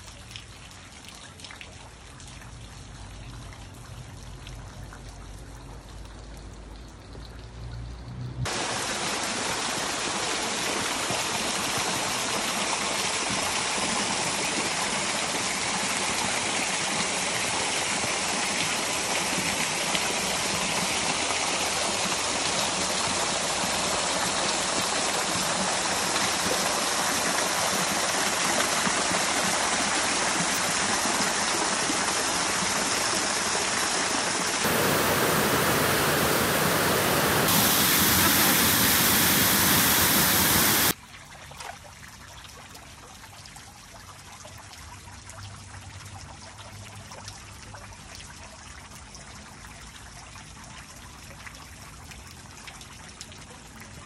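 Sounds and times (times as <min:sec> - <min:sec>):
waterfall rushing and splashing: 0:08.5 - 0:41.0.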